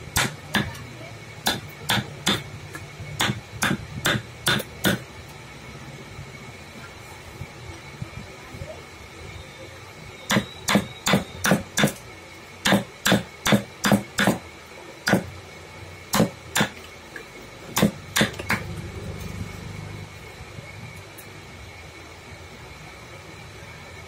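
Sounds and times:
mallet striking steel chisel: 1.4s - 2.4s, 3.2s - 5.0s, 10.3s - 12.0s, 12.6s - 14.4s.

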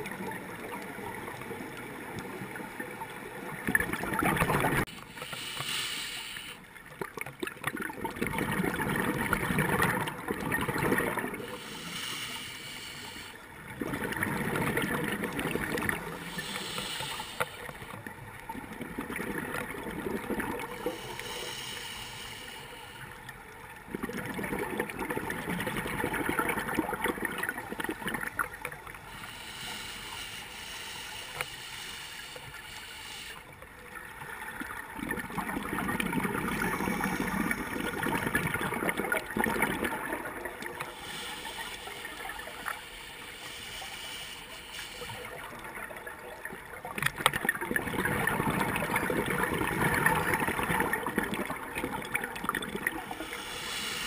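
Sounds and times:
exhaled bubbles gurgling: 0.0s - 5.0s, 6.9s - 12.5s, 13.5s - 21.4s, 23.7s - 29.6s, 33.8s - 43.4s, 45.0s - 54.0s
regulator hissing inhalations: 5.0s - 6.7s, 11.4s - 13.4s, 16.1s - 17.9s, 20.7s - 23.2s, 29.1s - 33.6s, 40.8s - 45.5s, 53.0s - 54.0s.

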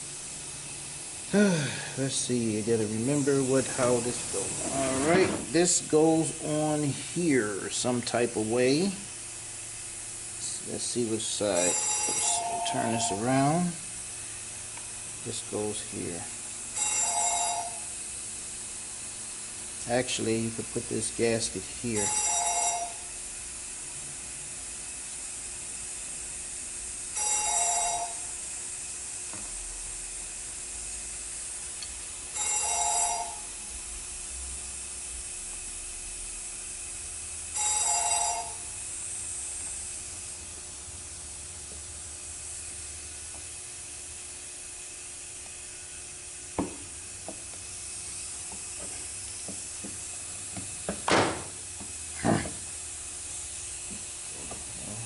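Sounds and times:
steady hiss: 0.0s - 16.7s, 17.6s - 22.1s
telephone ringing: 11.7s - 13.3s, 16.8s - 17.9s, 22.0s - 23.1s, 27.2s - 28.3s, 32.4s - 33.5s, 37.6s - 38.7s.

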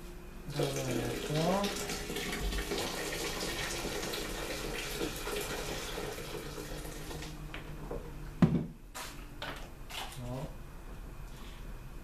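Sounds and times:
water pouring into mash: 0.5s - 7.3s.

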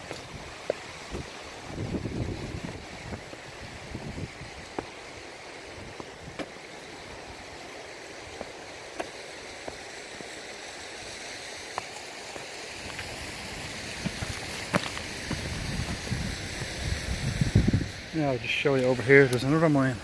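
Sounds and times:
footsteps on stony path: 0.0s - 10.7s, 11.6s - 16.3s.

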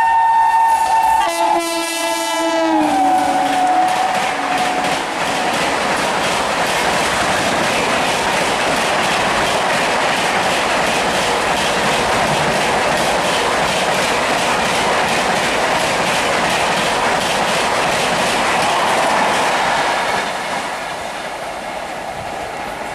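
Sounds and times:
train wheels rushing on rail: 0.0s - 22.9s
train wheels clickety-clack: 0.7s - 22.9s.

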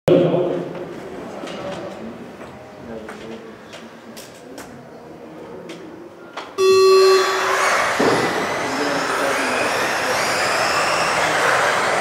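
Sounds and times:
electronic start tone: 6.6s - 11.0s
rc car motors whining: 6.6s - 12.0s.

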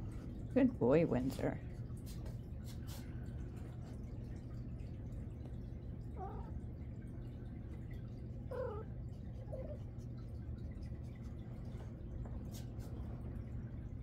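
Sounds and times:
cat meowing: 6.2s - 6.5s, 8.5s - 8.9s.

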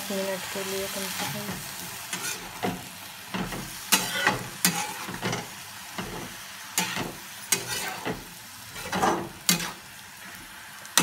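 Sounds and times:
frying sizzle: 0.0s - 11.0s
metal spatula scraping metal pan: 1.2s - 2.8s, 3.4s - 9.8s.

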